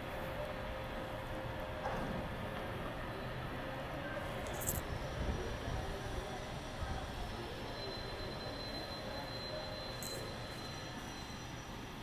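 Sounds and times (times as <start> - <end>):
faint high whine: 0.0 - 12.0
rail platform background hum: 0.0 - 12.0.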